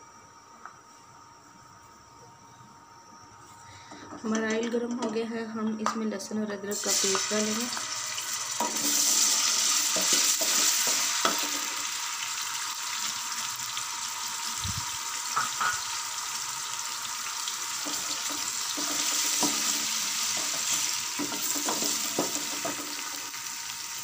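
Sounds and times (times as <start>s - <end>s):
paste sizzling in hot oil: 6.7s - 24.0s.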